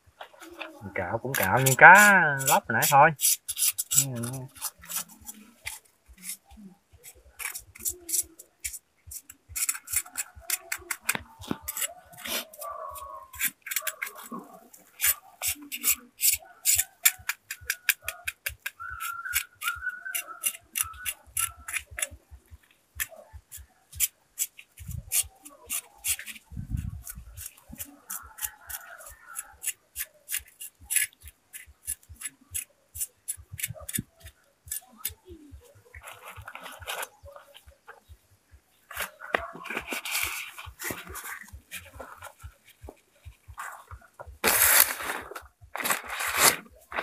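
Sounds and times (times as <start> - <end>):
blade scraping fish skin: 1.4 - 22.1, 23.0 - 35.2, 43.5 - 47.0.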